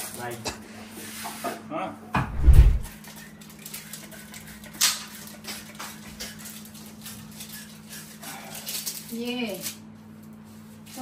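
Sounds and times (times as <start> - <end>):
heavy dull thump: 2.2 - 2.9.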